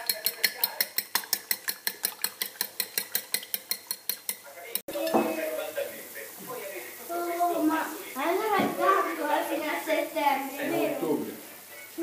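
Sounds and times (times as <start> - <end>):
fork clicking against a plate: 0.0 - 4.5.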